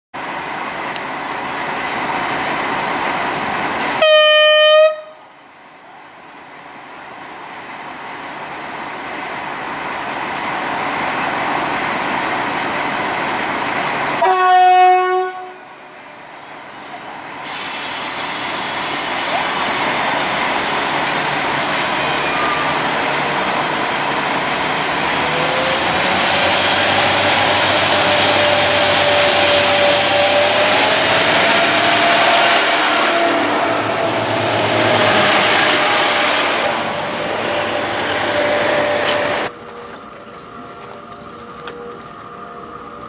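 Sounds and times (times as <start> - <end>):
train horn: 4.0 - 5.2, 14.2 - 15.8, 31.4 - 36.6.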